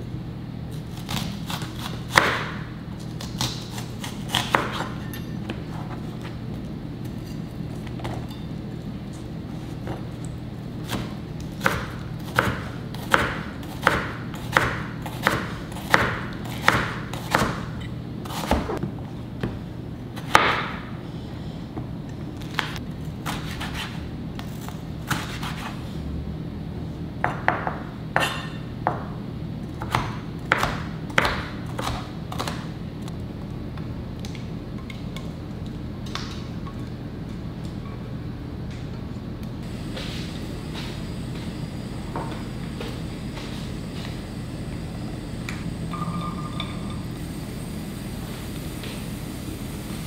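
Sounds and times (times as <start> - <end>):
knife chopping on cutting board: 10.8 - 17.6, 25.1 - 25.7.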